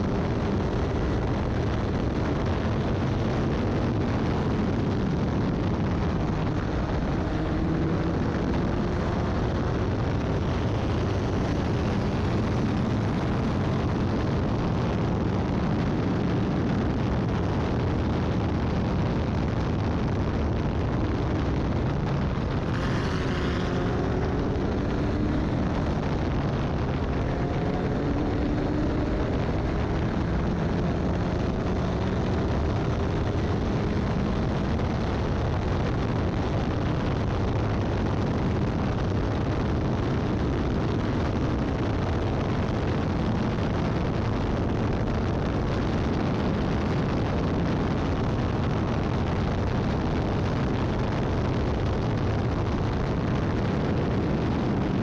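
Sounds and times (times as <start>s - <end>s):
wind and road noise: 0.0s - 55.0s
race car engine accelerating: 6.0s - 9.6s, 22.4s - 34.5s.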